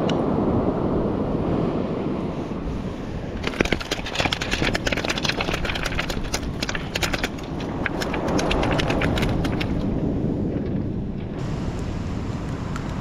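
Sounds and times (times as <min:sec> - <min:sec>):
pebbles clicking and clattering: 0:03.4 - 0:10.0.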